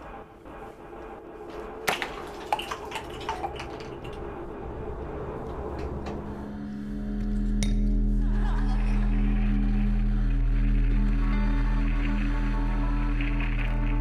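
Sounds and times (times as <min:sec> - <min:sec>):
water trickling in sink: 0:02.0 - 0:04.3.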